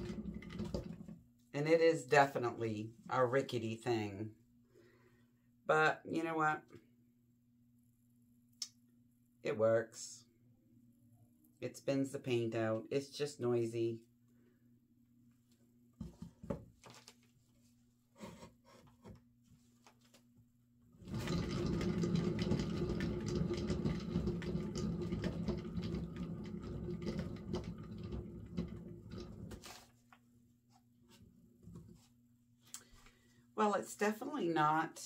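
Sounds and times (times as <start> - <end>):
paint spinner rattling whir: 0.0 - 1.1, 21.0 - 29.6.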